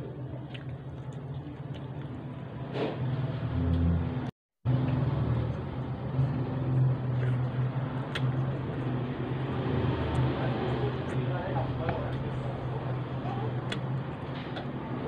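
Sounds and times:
burger being bitten and chewed: 0.0s - 3.0s, 4.8s - 11.2s
low background hum and rumble: 0.0s - 15.0s.

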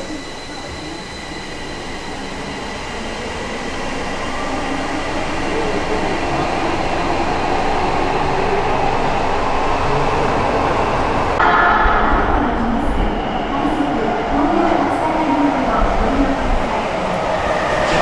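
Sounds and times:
subway train wheel and track noise: 0.0s - 18.0s.

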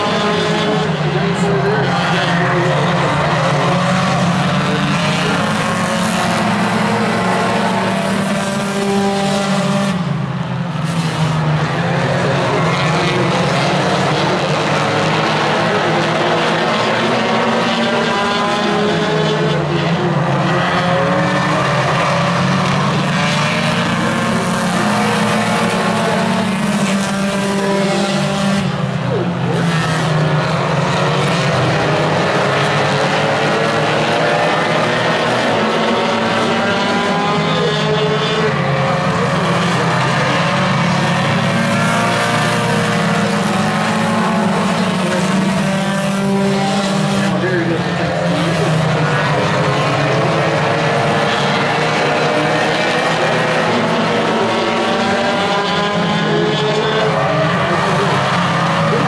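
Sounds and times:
race car engines revving: 0.0s - 59.0s.

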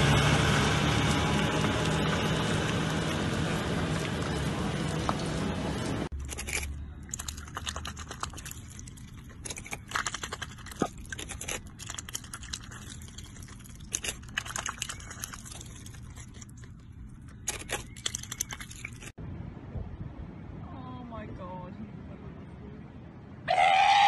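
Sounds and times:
duck crunching lettuce: 1.6s - 19.2s.

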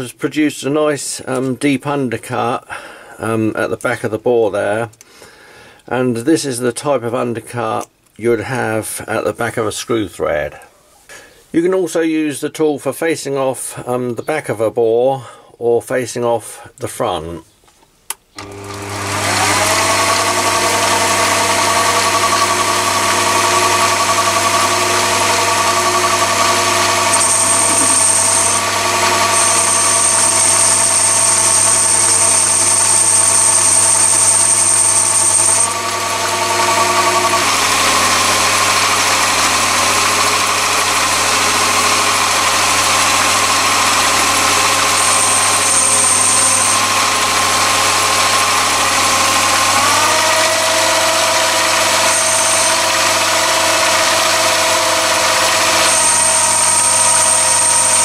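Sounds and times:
lathe motor whining: 18.4s - 58.0s
thin high-pitched whine: 25.4s - 35.9s, 44.7s - 47.2s, 50.8s - 58.0s.

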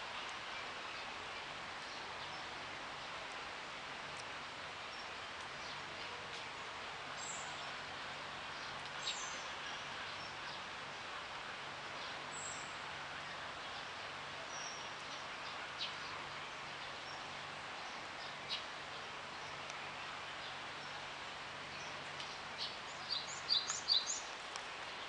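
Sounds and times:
outdoor background hiss: 0.0s - 25.0s.

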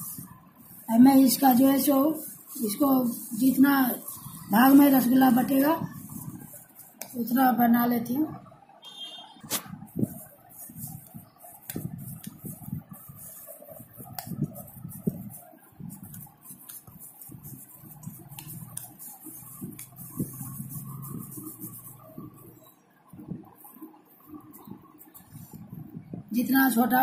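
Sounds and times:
hand rubbing cheese curd: 0.0s - 7.4s, 9.5s - 22.7s.

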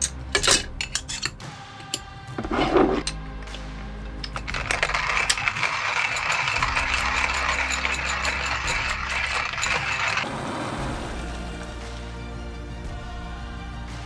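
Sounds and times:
hand coffee mill grinding beans: 4.2s - 10.3s.

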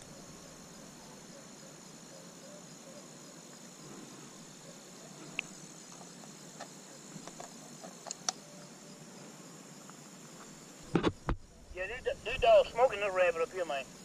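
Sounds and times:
high insect trill: 0.0s - 14.0s.

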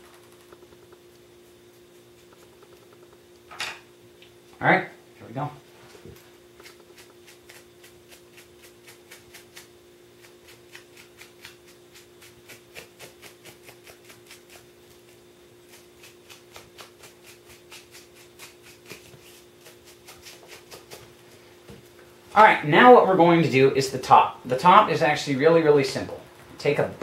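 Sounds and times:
faint hum: 0.0s - 27.0s.

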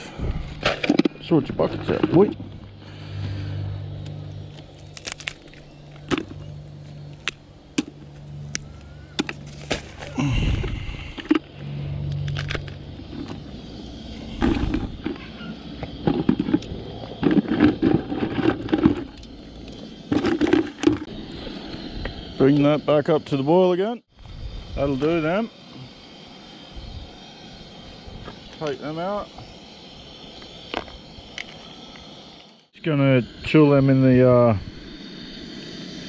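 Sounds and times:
crayfish shells clicking and cracking: 4.6s - 5.6s.

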